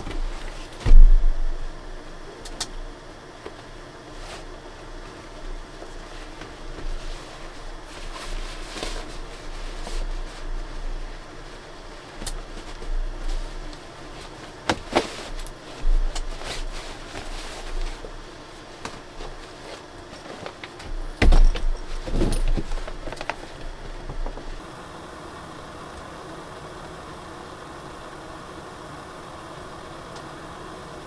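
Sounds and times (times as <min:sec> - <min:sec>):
gas stove burner hissing: 0:00.0 - 0:31.0
fabric bag rustling: 0:06.0 - 0:24.6.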